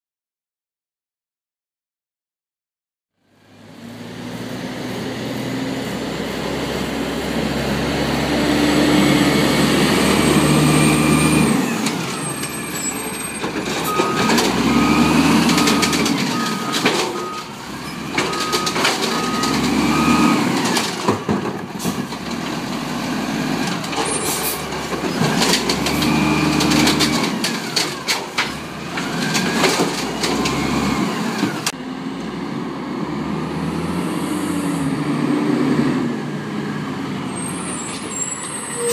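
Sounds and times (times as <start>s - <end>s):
garbage truck engine revving: 3.4s - 38.8s.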